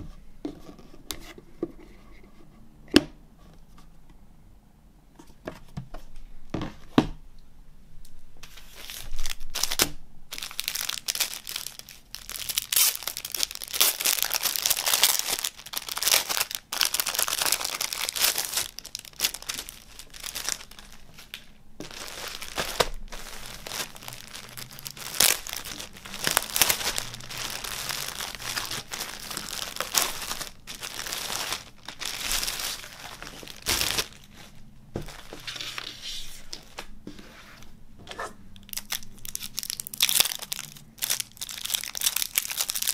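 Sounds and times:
plastic packaging crinkling: 8.5 - 36.9, 38.6 - 42.9.

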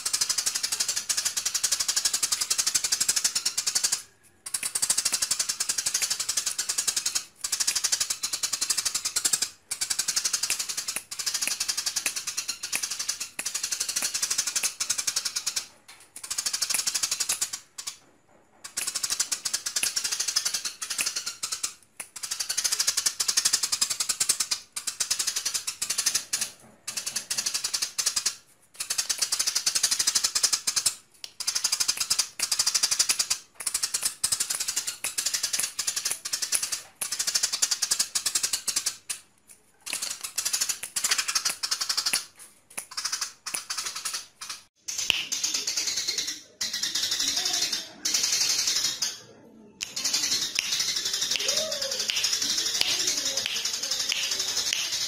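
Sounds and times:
sparrow chirping: 42.8 - 55.0.

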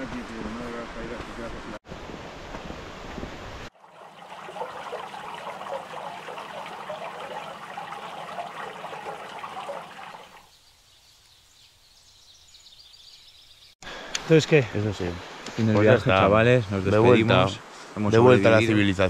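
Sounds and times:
fountain water splashing on stone: 3.8 - 10.4.

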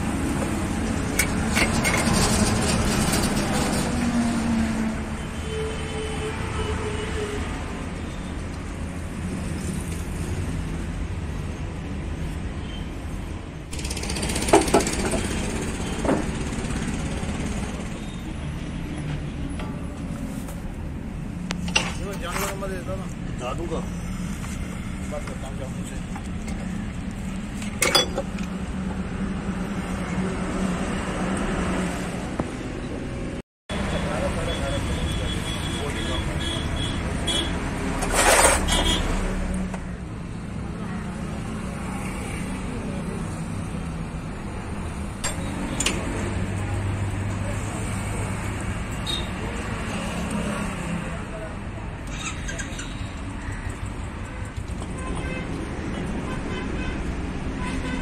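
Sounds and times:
metallic clank: 27.6 - 28.5.

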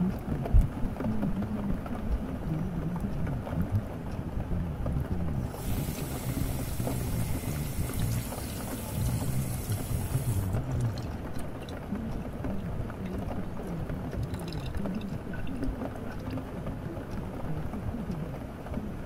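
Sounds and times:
muffled music: 0.0 - 19.0
steady rain: 0.0 - 19.0
high hiss: 5.5 - 10.6.

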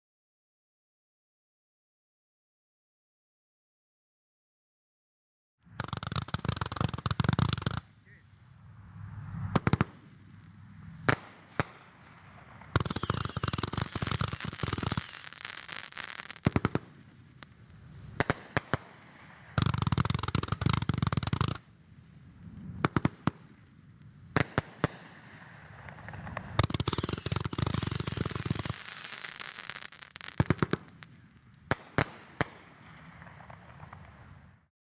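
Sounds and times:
fireworks hissing and whistling: 5.6 - 34.7
fireworks bangs: 5.7 - 8.2, 9.5 - 21.7, 22.6 - 34.6.

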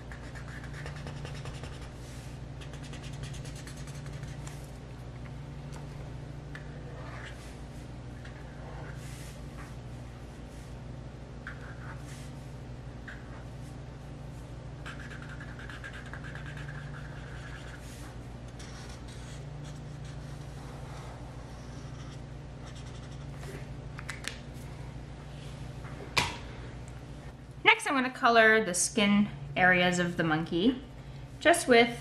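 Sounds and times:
steady low hum: 0.0 - 32.0
marker scratching on paper: 0.1 - 2.0, 2.6 - 4.6, 6.8 - 7.5, 8.2 - 9.2, 11.4 - 12.3, 14.8 - 20.4, 21.5 - 23.4.

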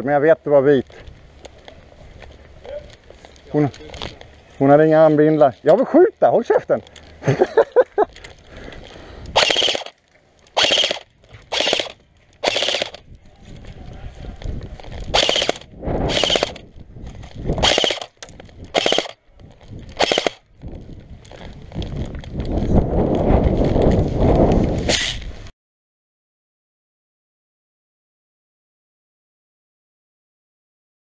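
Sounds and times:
airsoft machine gun bursts: 9.4 - 9.9, 10.6 - 13.0, 15.1 - 16.6, 17.6 - 18.1, 18.7 - 19.2, 20.0 - 20.4.

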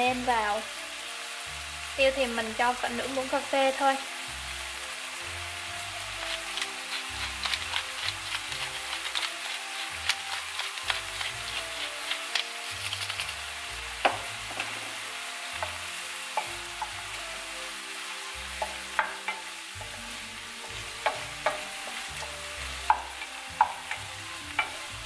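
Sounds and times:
food sizzling in a frying pan: 0.0 - 25.0
wooden spatula scraping a pan: 6.1 - 17.0, 18.5 - 25.0.

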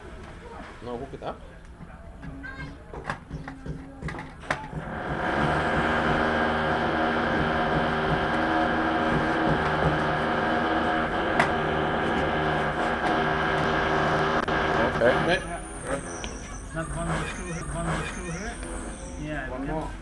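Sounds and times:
machine humming: 4.7 - 20.0.

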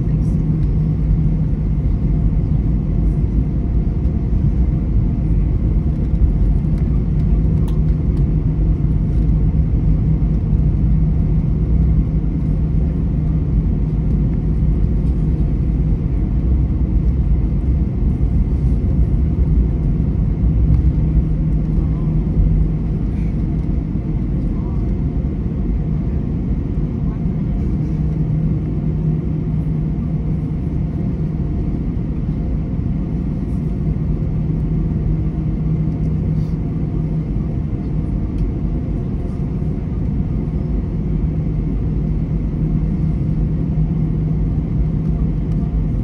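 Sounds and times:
jet engines idling: 0.0 - 46.0
steady low hum: 0.0 - 46.0.

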